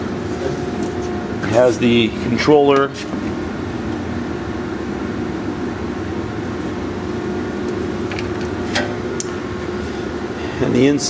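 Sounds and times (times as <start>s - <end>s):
shop machinery humming: 0.0s - 11.0s.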